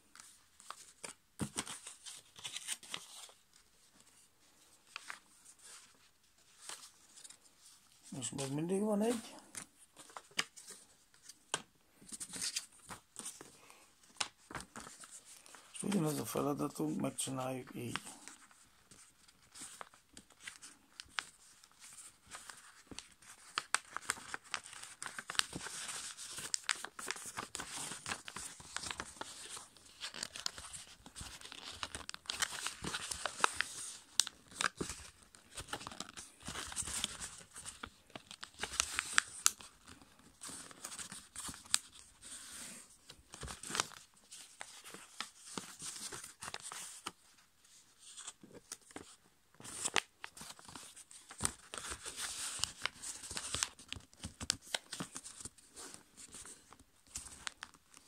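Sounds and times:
paper rustling and crinkling: 0.0 - 58.0
paper folds clicking: 17.9 - 42.6, 48.2 - 55.5.

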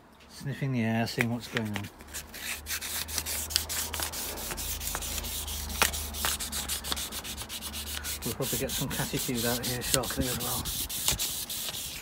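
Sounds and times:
wet sandpaper rubbing on paint: 2.1 - 12.0.

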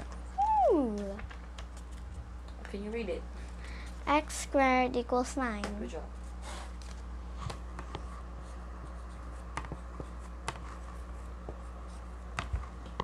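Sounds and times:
steady low hum: 0.0 - 13.0
marker scratching on whiteboard: 7.4 - 12.6.

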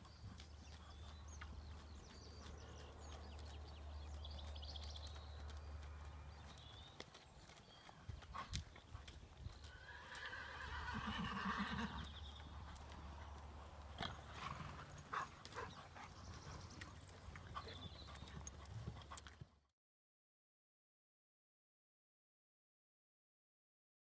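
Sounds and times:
pony hoofbeats trotting: 0.0 - 19.6
horse calling: 9.6 - 18.2.

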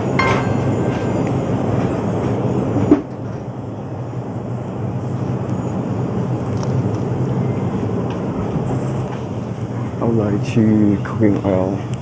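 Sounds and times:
supermarket background rumble: 0.0 - 12.0.

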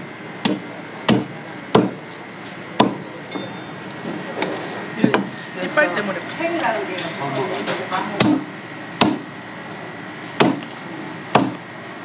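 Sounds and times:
blade chopping on wooden block: 0.4 - 2.0, 2.8 - 3.0, 8.2 - 9.3, 10.4 - 10.7, 11.3 - 11.6.

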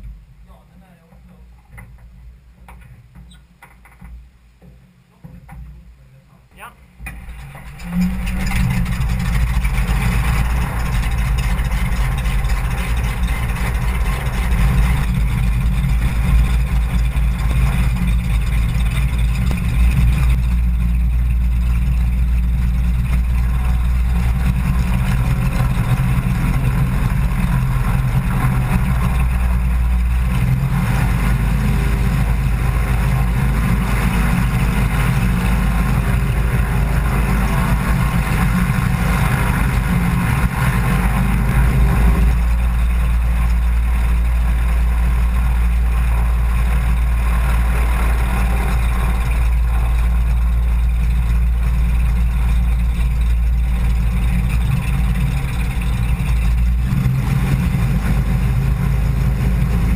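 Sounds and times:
plane engine and propeller: 5.2 - 59.9.

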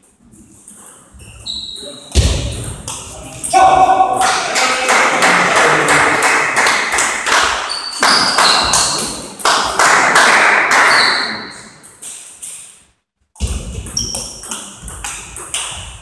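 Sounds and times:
table tennis ball bouncing: 13.4 - 16.0.

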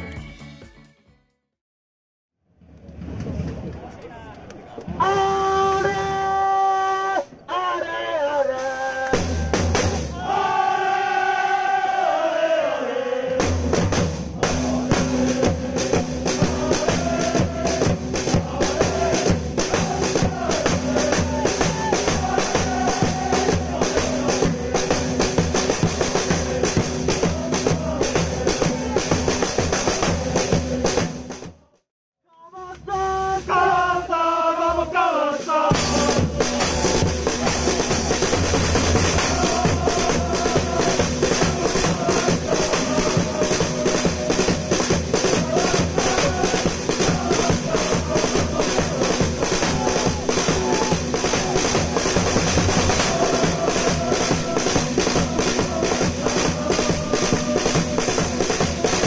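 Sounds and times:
football crowd chanting: 4.8 - 31.8, 32.6 - 59.0
snare drums beating fast rhythm: 8.6 - 10.3, 13.4 - 31.5, 35.7 - 59.0.

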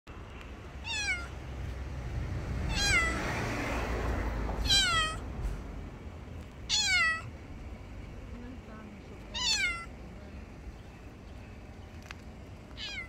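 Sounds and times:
cat meowing: 0.8 - 1.4, 2.7 - 3.2, 4.6 - 5.2, 6.7 - 7.3, 9.3 - 9.9, 12.8 - 13.0.

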